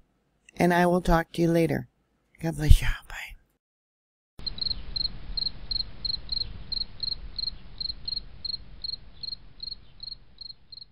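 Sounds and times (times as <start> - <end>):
low background rumble: 4.4 - 10.8
cricket chirping: 4.4 - 10.9.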